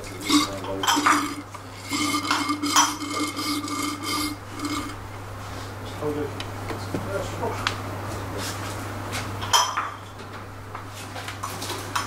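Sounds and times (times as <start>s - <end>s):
tool scraping and clinking on metal: 0.0s - 5.0s.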